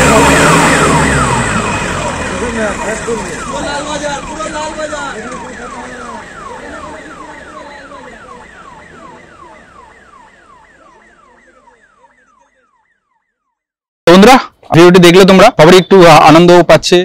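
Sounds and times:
police siren yelping: 0.0s - 13.7s.

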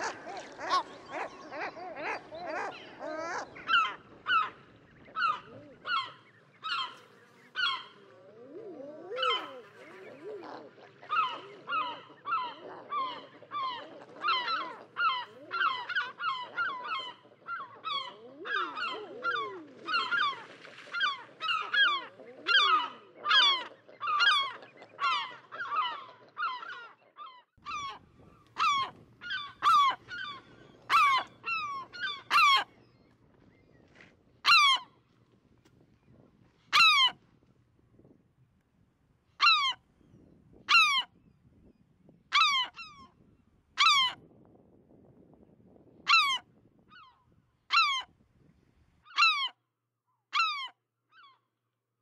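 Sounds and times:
birds honking: 27.7s - 32.7s.

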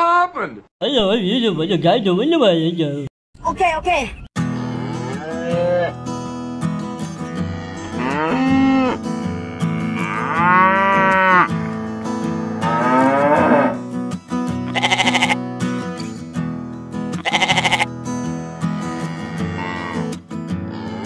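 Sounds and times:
cow mooing: 4.4s - 6.1s, 7.2s - 13.8s, 14.7s - 15.4s, 17.2s - 17.9s, 18.8s - 21.0s
quavering bleat: 4.4s - 6.1s, 7.2s - 13.8s, 14.6s - 15.5s, 17.1s - 18.0s, 18.8s - 21.0s
acoustic guitar music: 4.4s - 21.0s.

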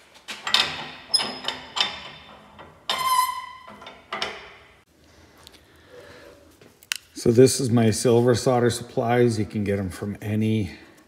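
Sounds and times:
metal vise handle clanking: 0.4s - 4.8s.

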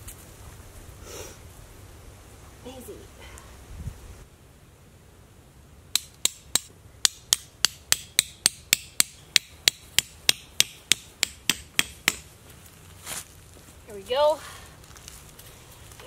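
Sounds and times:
hammer striking tent stake: 5.9s - 12.3s.

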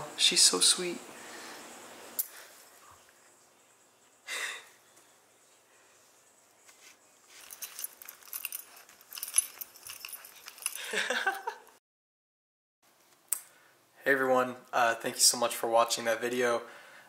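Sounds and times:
rustling against camera: 6.6s - 10.9s.

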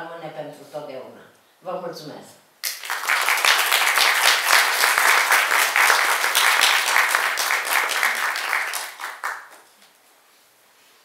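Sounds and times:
audience applauding: 2.6s - 9.7s.

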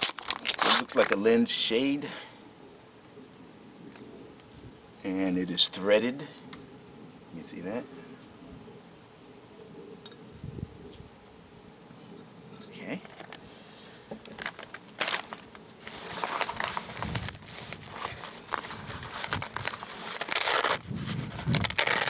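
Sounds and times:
nylon case rustling: 0.0s - 1.2s, 14.4s - 22.0s
plastic bags crinkling: 0.0s - 1.2s, 14.3s - 20.8s
insects trilling: 0.0s - 22.0s.

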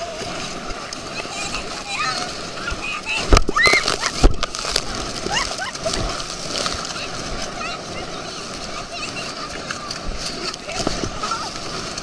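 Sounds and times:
rush of water: 0.0s - 12.0s
wind: 0.0s - 12.0s
people shrieking and squealing: 1.2s - 4.3s, 5.0s - 6.3s.

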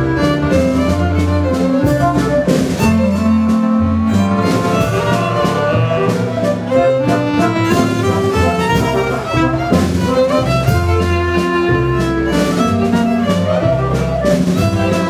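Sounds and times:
clarinet: 0.0s - 15.0s
double bass: 0.0s - 15.0s
small band playing dance tune: 0.0s - 15.0s
violin: 0.0s - 15.0s.

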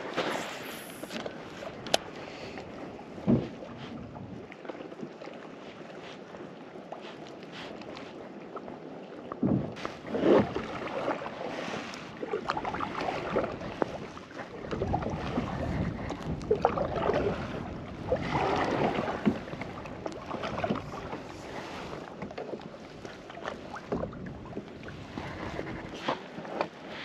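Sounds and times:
wind buffeting microphone: 0.0s - 4.5s, 12.5s - 22.2s, 22.9s - 26.0s
paddle splashing water: 0.0s - 27.0s.

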